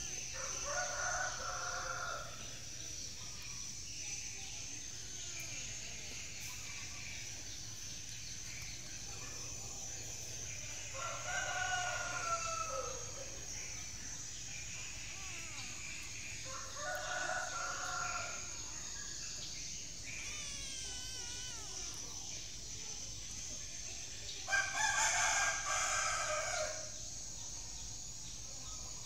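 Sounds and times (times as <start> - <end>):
steady high hiss: 0.0 - 29.0
rooster crowing: 0.4 - 2.4, 10.9 - 13.2, 16.4 - 18.6, 24.5 - 26.8.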